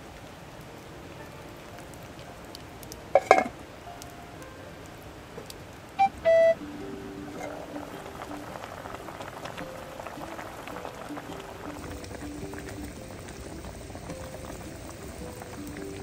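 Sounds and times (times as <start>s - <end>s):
soft background music: 0.0s - 16.0s
stew bubbling at a simmer: 1.5s - 3.7s, 5.4s - 16.0s.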